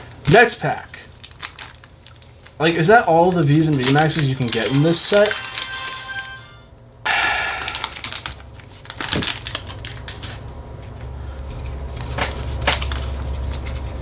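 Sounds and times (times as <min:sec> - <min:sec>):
foil wrapper tearing: 0:00.2 - 0:05.7, 0:07.3 - 0:10.4
cards rustling and clicking: 0:01.3 - 0:06.0, 0:11.5 - 0:14.0.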